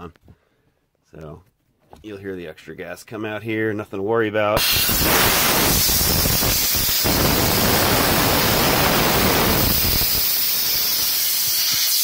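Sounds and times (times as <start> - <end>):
gas hissing from a hose: 4.6 - 12.0.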